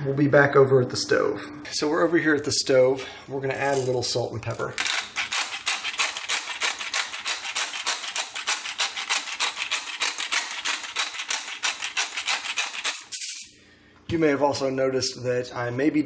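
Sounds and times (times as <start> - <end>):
pepper mill grinding: 3.6 - 13.5.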